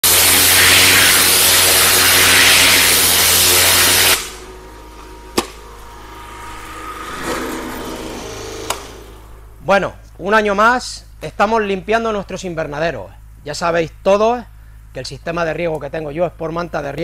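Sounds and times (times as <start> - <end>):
pressure washer water jet hiss: 0.0 - 6.8
machine hum: 0.0 - 15.3.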